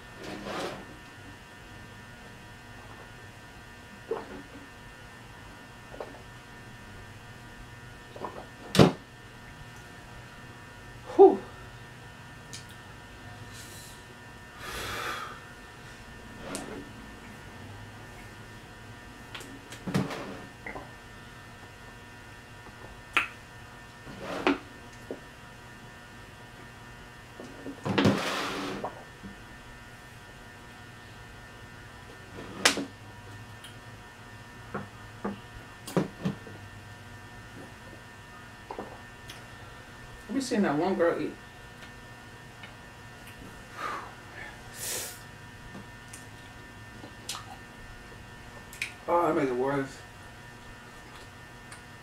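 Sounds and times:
steady electrical hum: 0:00.0 - 0:52.0.

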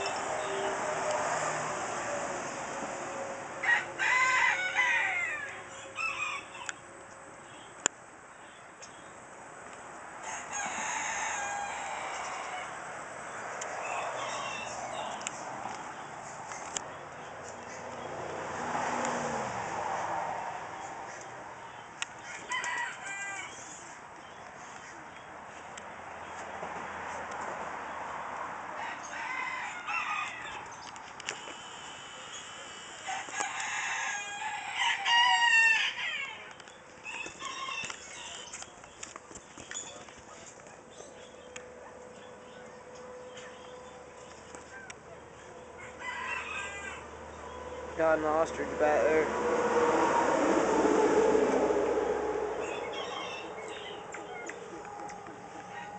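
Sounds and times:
rooster crowing: 0:03.6 - 0:06.8, 0:10.2 - 0:15.2, 0:22.2 - 0:23.8, 0:28.8 - 0:30.8, 0:32.1 - 0:38.5, 0:44.7 - 0:47.8, 0:49.3 - 0:55.9.

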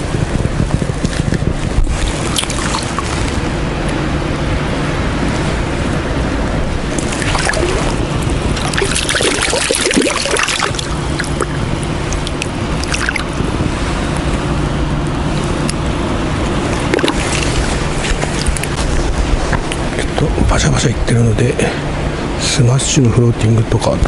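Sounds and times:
wind noise on microphone: 0:00.0 - 0:24.0
fish splashing in water: 0:02.0 - 0:03.4, 0:06.9 - 0:13.4, 0:16.8 - 0:19.0.

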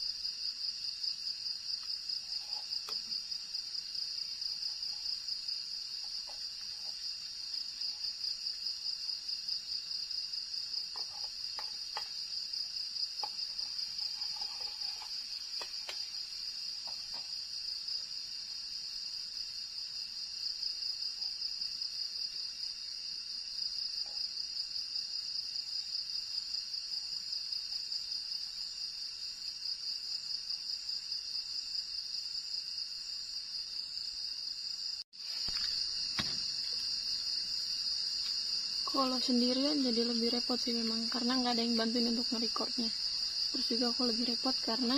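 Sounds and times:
crickets trilling: 0:00.0 - 0:44.9.

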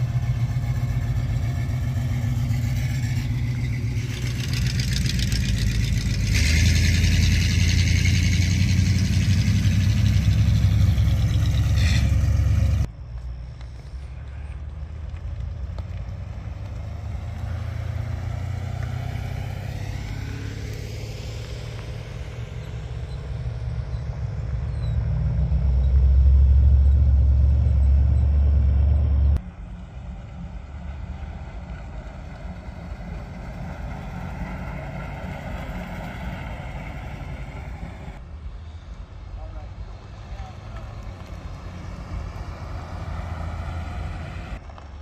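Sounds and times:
classic car engines driving past: 0:00.0 - 0:13.1, 0:14.0 - 0:45.0
quieter engine sound: 0:00.0 - 0:45.0.

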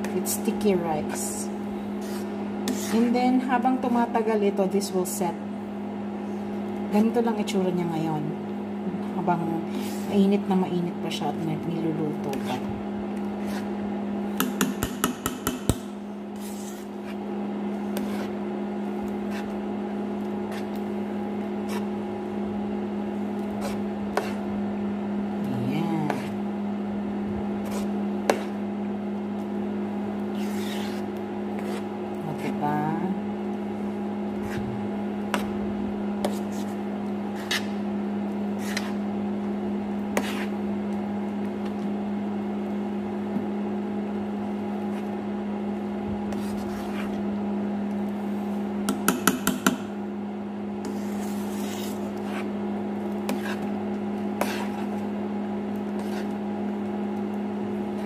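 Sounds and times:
electric cooker hum: 0:00.0 - 0:58.0
metal spoon scraping a pan: 0:02.0 - 0:03.2, 0:30.3 - 0:31.9, 0:50.8 - 0:52.5.

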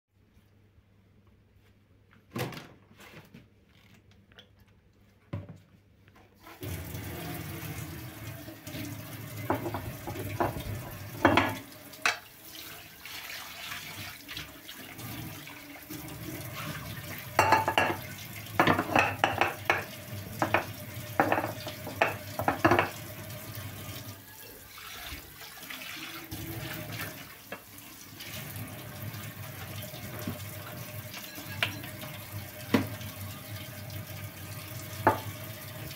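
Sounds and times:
tap water running into sink: 0:06.5 - 0:35.9
pan knocking against sink: 0:09.4 - 0:12.2, 0:17.4 - 0:23.0, 0:35.0 - 0:35.3.

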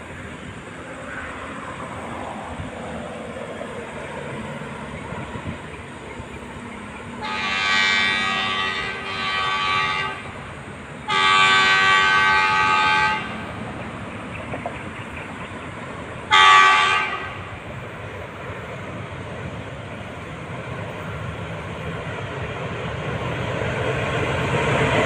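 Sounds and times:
diesel locomotive horn blasts: 0:07.2 - 0:13.7, 0:16.3 - 0:17.7.

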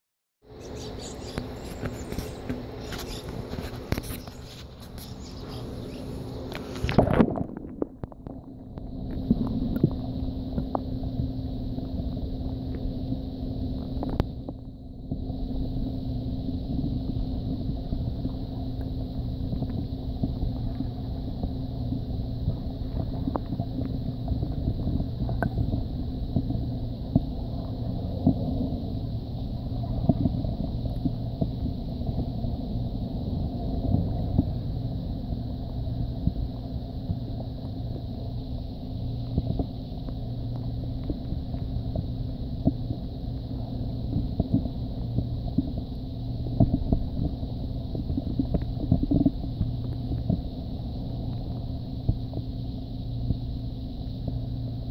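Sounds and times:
underwater low rumble: 0:00.4 - 0:54.9
faint underwater clicks: 0:13.7 - 0:15.4, 0:16.7 - 0:54.8.

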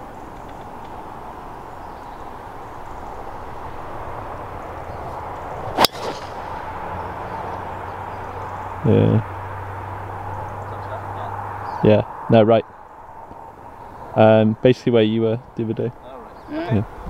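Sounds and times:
outdoor background hiss: 0:00.0 - 0:17.0
golf club striking ball: 0:05.7 - 0:06.8.

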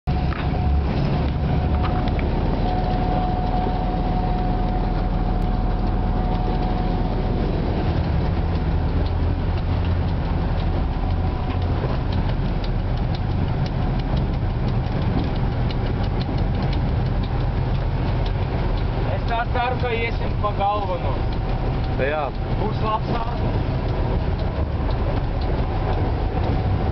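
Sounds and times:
diesel locomotive engine drone: 0:00.0 - 0:26.9.

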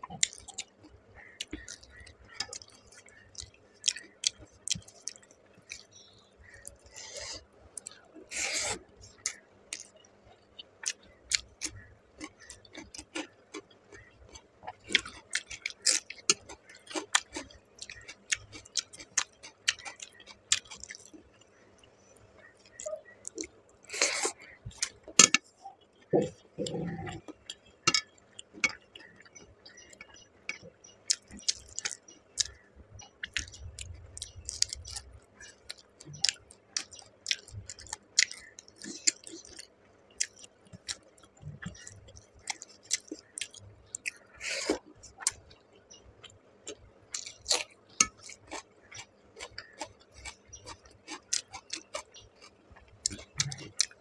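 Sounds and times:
chewing and wet mouth clicks: 0:25.7 - 0:54.0.

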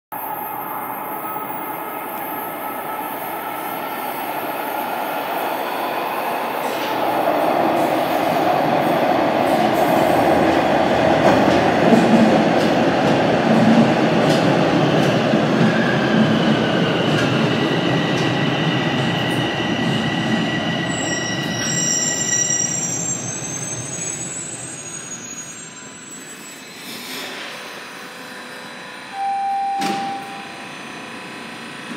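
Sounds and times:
subway train wheels rumbling: 0:00.1 - 0:31.9
high brake squeal: 0:20.8 - 0:27.7.

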